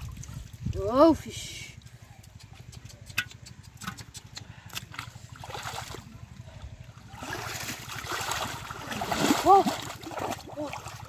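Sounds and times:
sloshing and splashing water: 0.0 - 1.1, 4.7 - 11.0.

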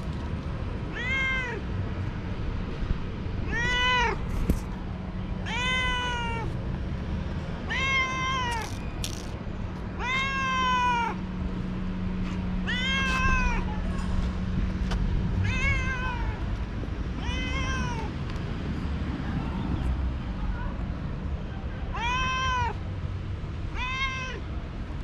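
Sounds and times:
cat meowing: 0.9 - 1.6, 3.5 - 4.2, 5.4 - 6.6, 7.7 - 9.2, 10.0 - 11.2, 12.6 - 13.8, 15.4 - 16.4, 17.2 - 18.1, 21.9 - 22.8, 23.8 - 24.4.

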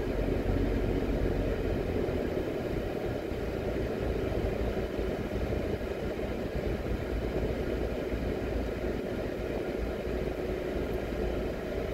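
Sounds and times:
car engine and tyre noise: 0.0 - 11.9
faint steady hum: 0.0 - 11.9.

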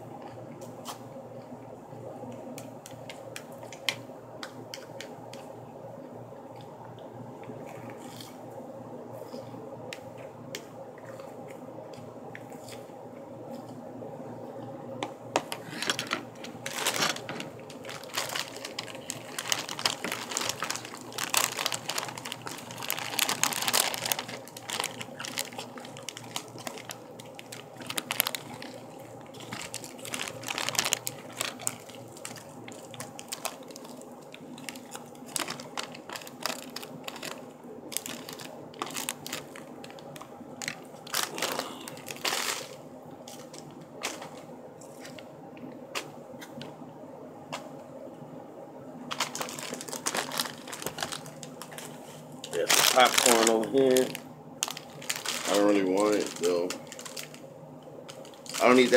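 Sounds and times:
plastic bag crinkling: 15.4 - 45.2, 49.1 - 58.9.

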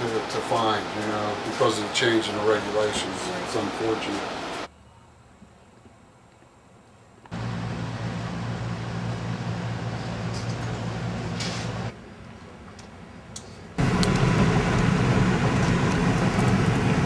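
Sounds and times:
mechanical hum: 0.0 - 17.0
car road noise on gravel: 13.8 - 17.0.

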